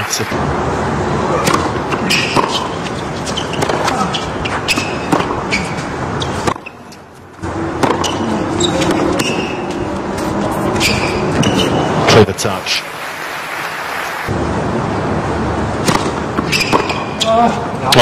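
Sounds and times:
racket striking tennis ball: 1.4s - 11.9s, 15.8s - 17.3s
shoe squeaks: 2.0s - 7.2s, 7.8s - 12.0s, 16.4s - 17.5s.

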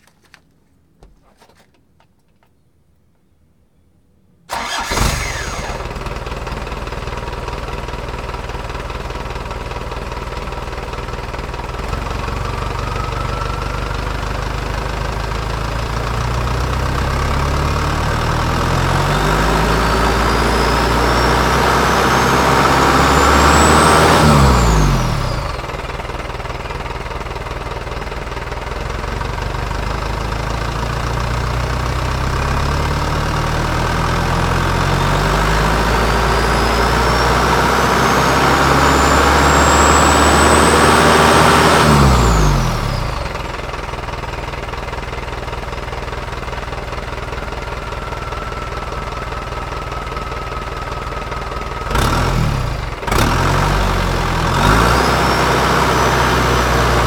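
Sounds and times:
diesel engine revving: 4.5s - 57.0s
turbocharger whistle: 18.7s - 25.4s, 34.9s - 43.0s.

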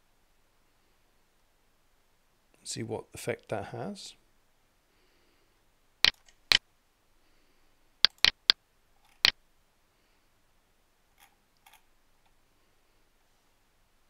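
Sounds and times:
computer mouse clicking: 8.1s - 9.3s.

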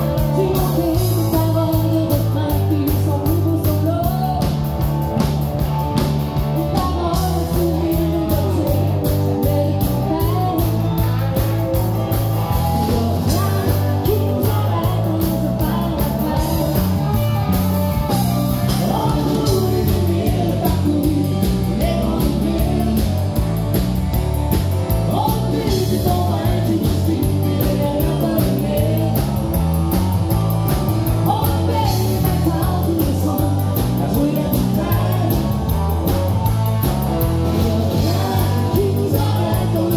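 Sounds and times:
woman singing: 0.0s - 4.7s, 6.6s - 11.2s, 12.6s - 17.2s, 18.7s - 23.2s, 25.1s - 29.4s, 31.2s - 35.6s, 37.5s - 39.9s
country band playing: 0.0s - 39.9s.

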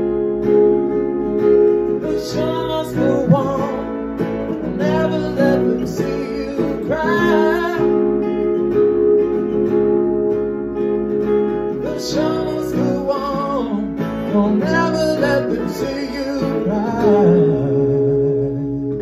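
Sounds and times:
acoustic guitar strumming: 0.0s - 19.0s
man singing: 2.0s - 8.3s, 11.8s - 19.0s.

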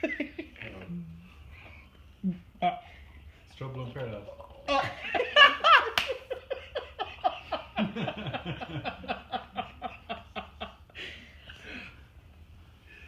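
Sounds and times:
woman laughing hard: 5.0s - 10.9s.

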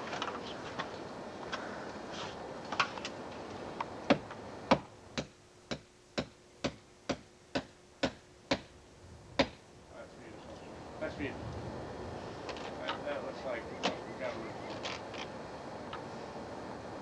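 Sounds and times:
hammer striking nails into wood: 4.1s - 8.7s.

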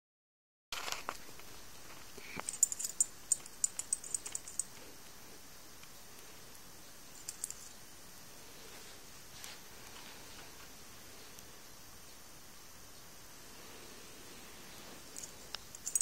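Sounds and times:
dog collar tags clinking: 2.4s - 4.7s, 7.2s - 7.7s, 15.2s - 16.0s.

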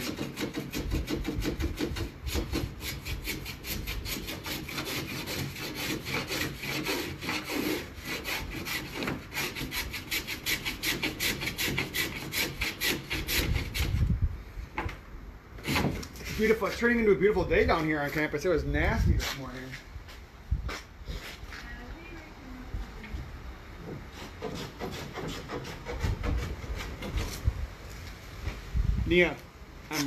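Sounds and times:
hand tool shaving plywood: 0.0s - 14.0s, 15.6s - 16.6s, 24.1s - 27.5s.

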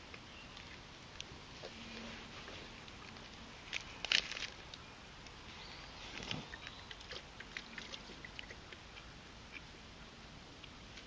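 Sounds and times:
soft crunch: 0.0s - 8.8s.

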